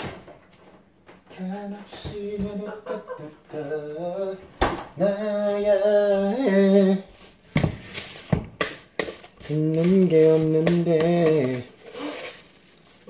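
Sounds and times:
man singing long notes: 1.4 - 7.1.

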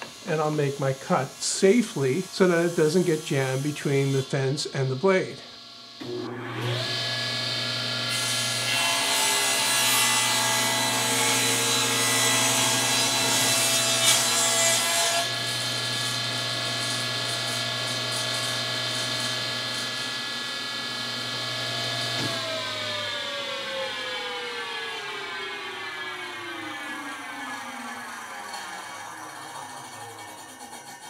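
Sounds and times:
table saw ripping wood: 6.0 - 31.0
saw blade spinning down: 21.6 - 31.0.

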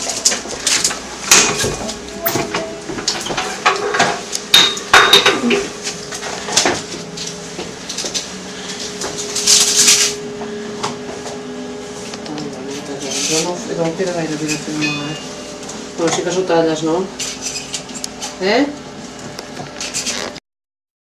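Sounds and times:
utensils clinking: 0.0 - 10.2, 12.4 - 16.4
steady low hum: 0.0 - 20.2.

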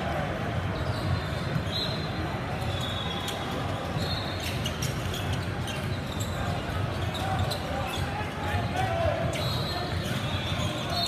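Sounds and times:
sneaker squeaks: 0.5 - 11.0
basketball bouncing on court: 0.7 - 2.7.

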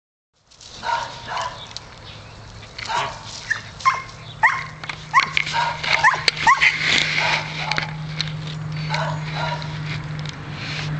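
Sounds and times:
dogs yipping and whining: 2.8 - 8.1, 8.7 - 9.8
dog yelping: 2.9 - 8.1, 8.9 - 9.7.

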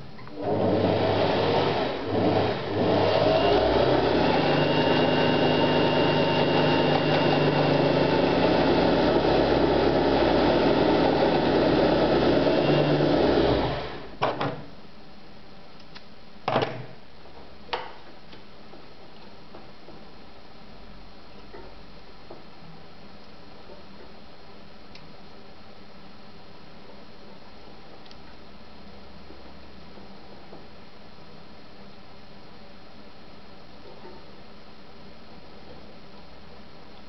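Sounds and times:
sewing machine motor running: 0.4 - 14.0.

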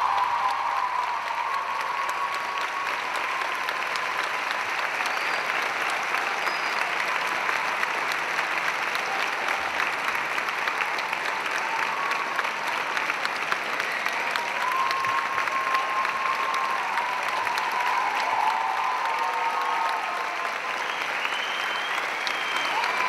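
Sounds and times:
audience applauding: 0.0 - 23.0.

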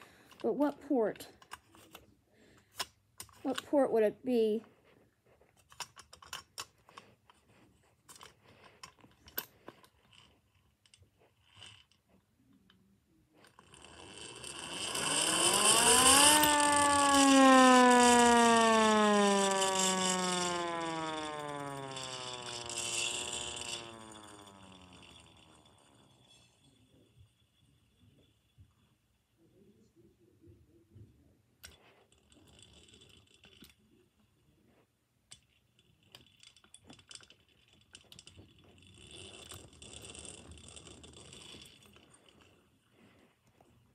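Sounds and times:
hand-crank siren wail: 14.4 - 26.2.

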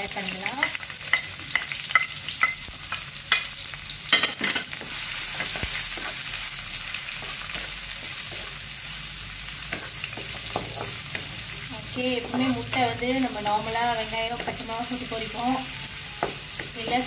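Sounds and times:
onions sizzling in oil: 0.0 - 17.0.

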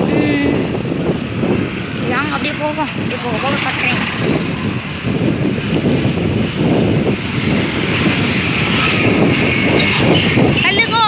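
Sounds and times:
wind buffeting microphone: 0.0 - 11.0.

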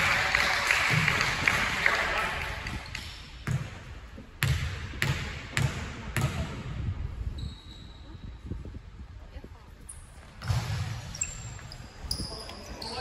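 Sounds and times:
basketball bouncing on wooden floor: 4.4 - 6.4.

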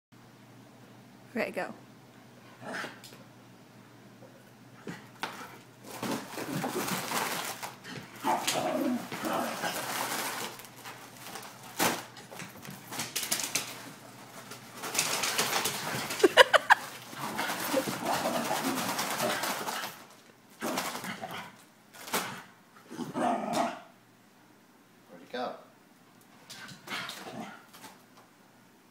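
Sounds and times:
foil balloon crinkling: 5.8 - 21.1.

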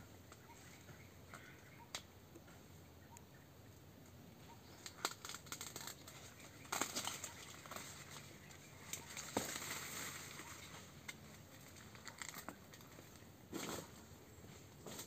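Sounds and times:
corn husks rustling and tearing: 4.7 - 14.1.

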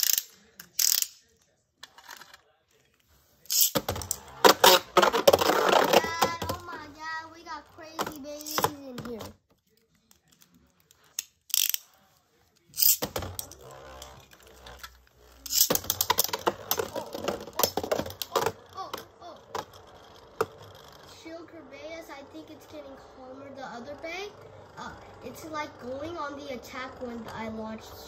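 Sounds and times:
wordless voice: 5.4 - 11.2.

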